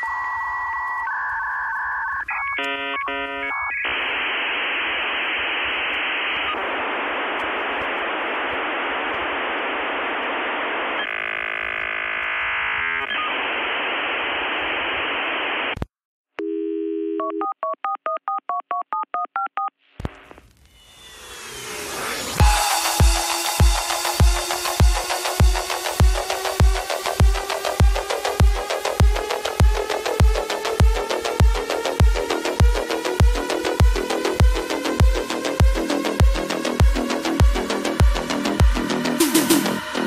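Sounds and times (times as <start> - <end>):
telephone line hiss: 0.0 - 15.8, 20.1 - 40.0
rapid alternating beeps: 22.4 - 40.0.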